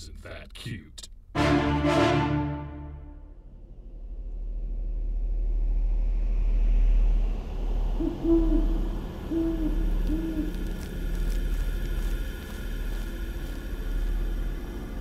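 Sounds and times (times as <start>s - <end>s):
owl hooting: 7.9s - 11.4s.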